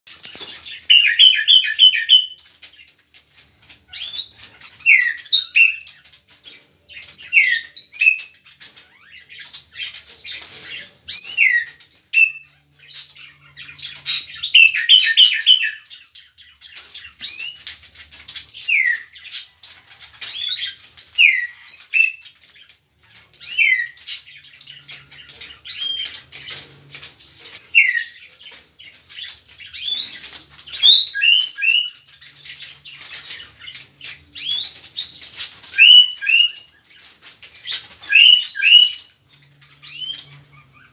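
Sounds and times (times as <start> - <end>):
bird trill: 0.3 - 2.5, 3.9 - 6.1, 6.9 - 17.7, 18.4 - 40.9.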